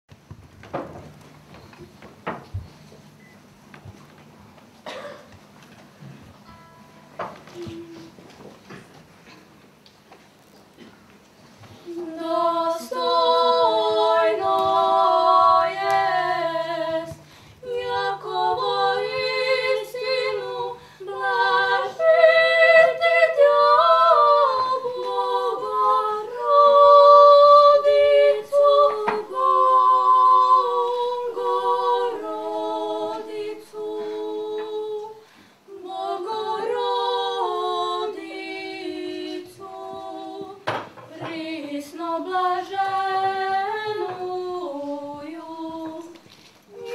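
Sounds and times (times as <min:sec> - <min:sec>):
women singing in harmony: 0:11.8 - 0:46.9.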